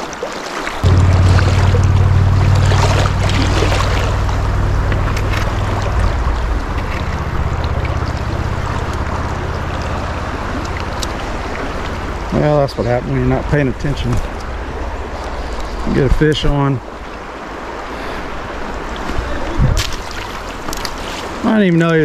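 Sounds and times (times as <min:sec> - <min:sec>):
shallow river running fast: 0:00.0 - 0:22.0
low rumble on microphone: 0:00.8 - 0:17.7.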